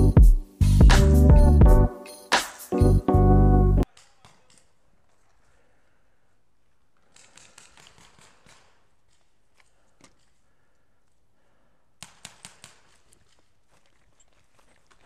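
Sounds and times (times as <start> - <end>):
paintball markers firing: 7.0 - 10.4, 12.0 - 13.7.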